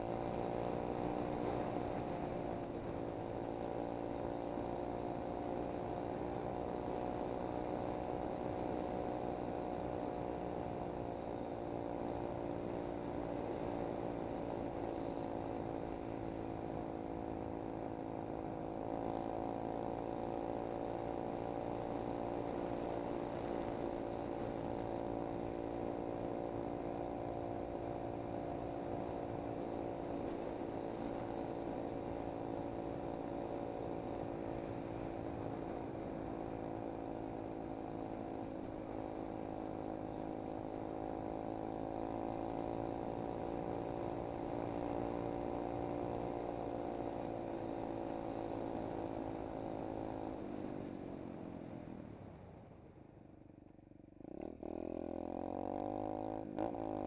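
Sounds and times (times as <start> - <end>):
motorbike engine running: 0.0 - 57.0.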